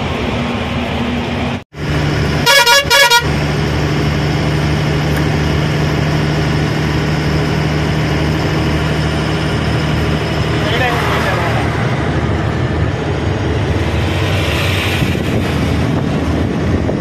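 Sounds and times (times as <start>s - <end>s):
truck engine droning: 0.0s - 17.0s
truck horn blasts: 2.4s - 3.4s.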